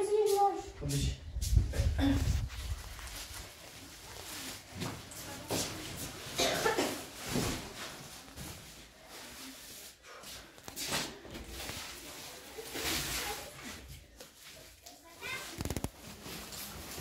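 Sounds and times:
plastic sacks rustling: 0:01.8 - 0:17.0.

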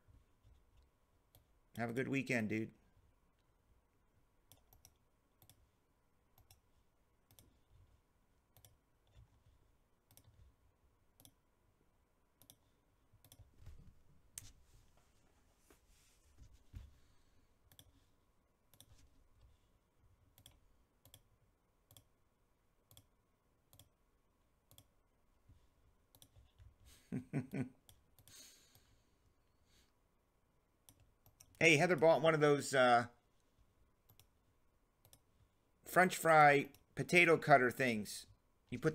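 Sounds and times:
computer mouse clicks: 0:04.5 - 0:05.7, 0:06.4 - 0:07.8, 0:08.5 - 0:11.4, 0:12.4 - 0:13.5, 0:17.7 - 0:18.0, 0:18.7 - 0:19.5, 0:20.3 - 0:22.1, 0:22.8 - 0:23.1, 0:23.7 - 0:24.0, 0:24.6 - 0:25.0, 0:26.1 - 0:26.7, 0:34.0 - 0:34.4, 0:35.0 - 0:35.4.

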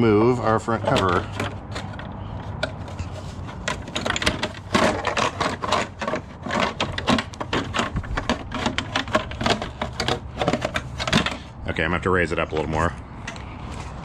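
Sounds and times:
plastic clicks and rattles: 0:03.5 - 0:11.5.

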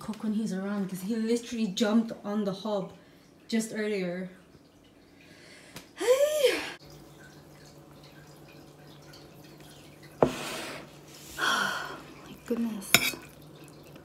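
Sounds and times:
faint steady hum: 0:00.0 - 0:14.0
spoon clinking against ceramic bowl: 0:12.9 - 0:13.4.

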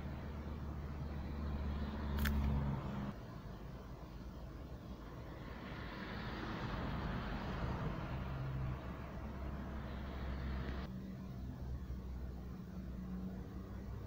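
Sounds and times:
tyre and road noise: 0:00.0 - 0:03.2, 0:04.6 - 0:10.9.

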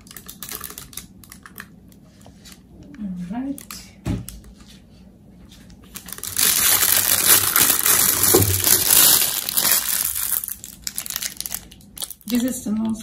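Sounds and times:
plastic bag crinkling: 0:00.0 - 0:01.7, 0:05.8 - 0:13.0.

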